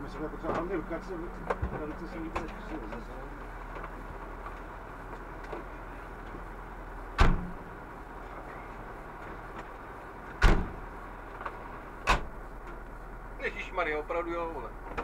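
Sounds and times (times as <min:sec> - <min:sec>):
vehicle engine idling: 0:00.0 - 0:15.0
vehicle doors slamming: 0:07.1 - 0:07.8, 0:10.2 - 0:10.9, 0:12.0 - 0:12.8.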